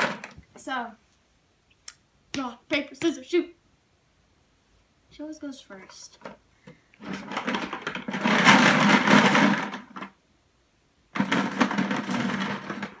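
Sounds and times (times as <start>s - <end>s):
markers rattling in plastic bucket: 7.0s - 10.1s, 11.2s - 13.0s.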